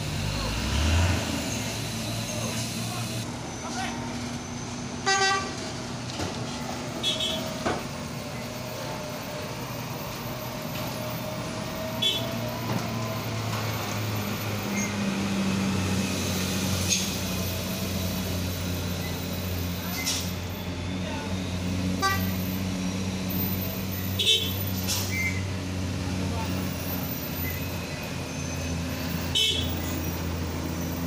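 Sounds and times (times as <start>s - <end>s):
truck diesel engines running: 0.0s - 31.0s
vehicle horn: 5.0s - 5.6s, 7.0s - 7.5s, 12.0s - 12.4s, 22.0s - 22.4s, 24.2s - 24.6s, 29.3s - 30.0s.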